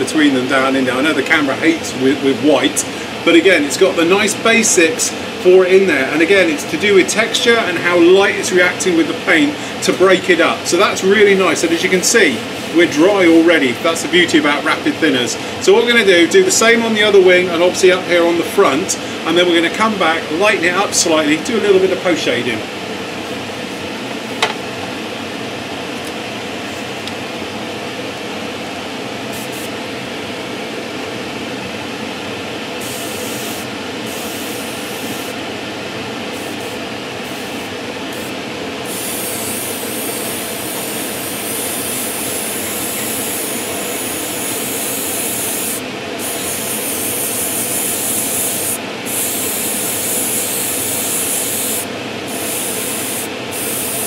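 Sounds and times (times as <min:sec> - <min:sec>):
extractor fan humming: 0:00.0 - 0:54.0
airbrush spraying hiss: 0:38.9 - 0:54.0.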